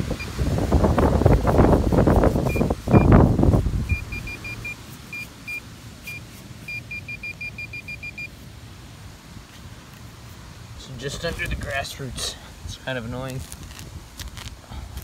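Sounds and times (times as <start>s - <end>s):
short high beeps: 3.9s - 8.3s.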